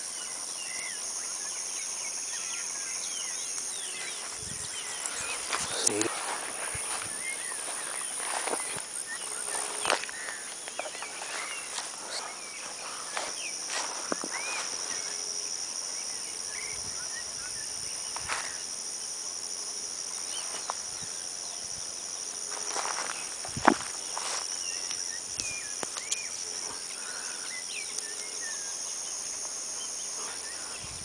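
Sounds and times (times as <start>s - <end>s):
insects droning: 0.0s - 31.0s
footsteps through grass: 3.6s - 15.2s, 22.5s - 26.1s.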